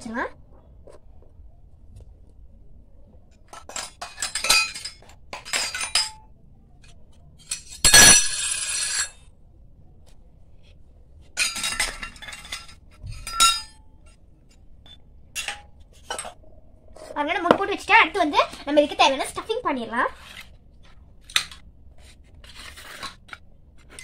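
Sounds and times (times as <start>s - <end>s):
small metal dishes clinking: 3.4s - 6.3s, 7.4s - 9.2s, 11.4s - 14.2s, 14.8s - 16.4s
metal clang ringing: 7.5s - 9.1s, 11.4s - 13.8s.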